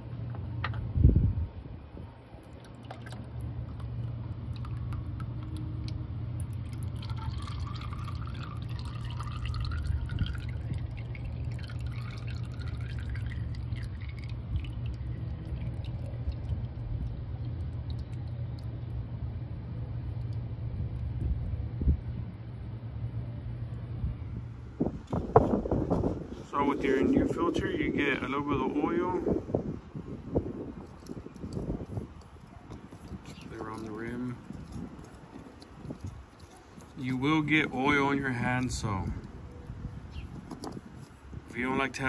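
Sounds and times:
steady low rumble: 0.0 - 42.0
oil trickling into a drain pan: 2.2 - 19.4, 30.8 - 38.1.

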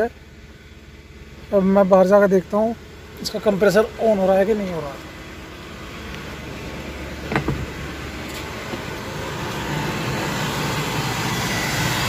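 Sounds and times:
car engine idling: 0.0 - 12.0
thump: 7.3 - 7.7.

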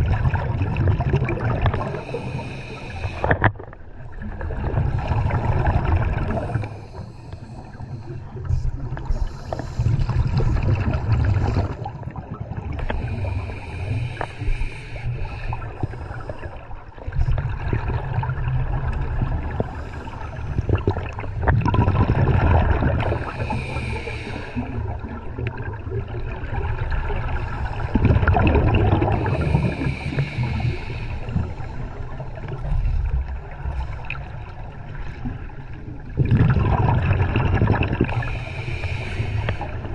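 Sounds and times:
exhaled bubbles bubbling: 0.0 - 39.9
regulator inhale hiss: 1.8 - 3.4, 6.3 - 8.4, 9.0 - 10.4, 12.8 - 16.7, 23.0 - 25.1, 29.1 - 33.2, 38.0 - 39.9.

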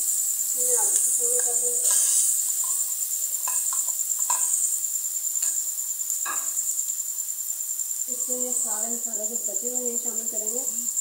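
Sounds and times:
steady high hiss: 0.0 - 11.0
spoon stirring in a pan: 0.8 - 4.7
spoon clinking against pan: 2.6 - 4.6.

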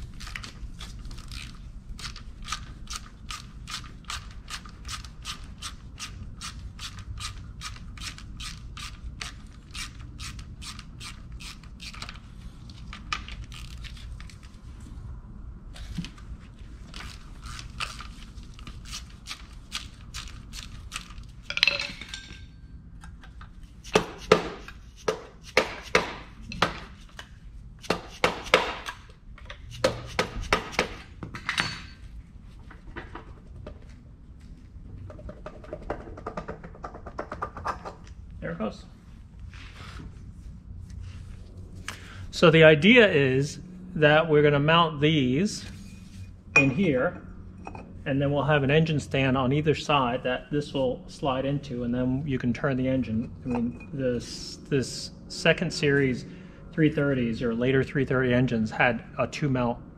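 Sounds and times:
ratchet wrench clicking: 1.3 - 12.1.

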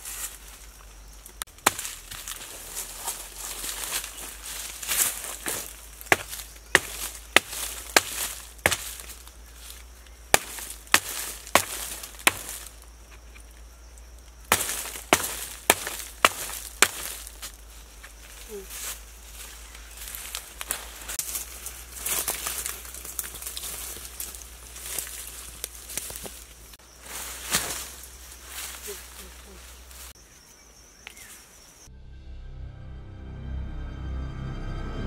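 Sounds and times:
dry leaf litter rustling: 0.0 - 30.2
tool chopping into log: 1.6 - 2.4, 5.4 - 9.2, 10.3 - 12.7, 14.5 - 17.4.

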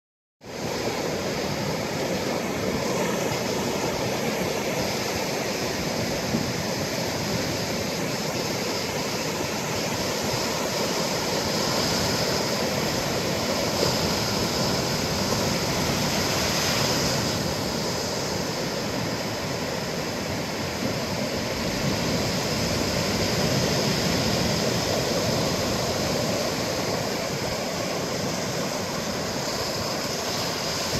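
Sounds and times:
ocean surf breaking: 0.4 - 30.9.

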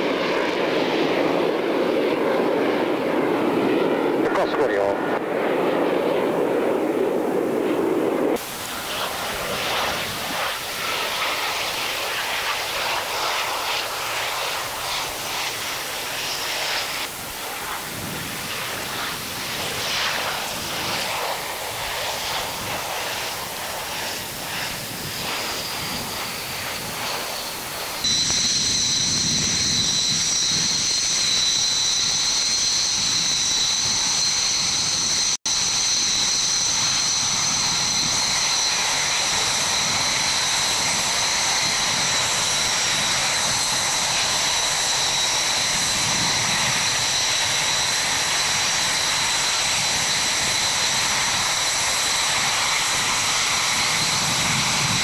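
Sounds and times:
jet engine high whine: 0.0 - 55.0
jet landing rushing noise: 0.0 - 55.0.

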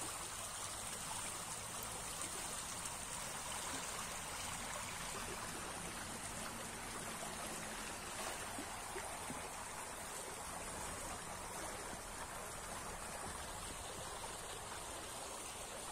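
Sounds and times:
stream water rippling: 0.0 - 15.9.

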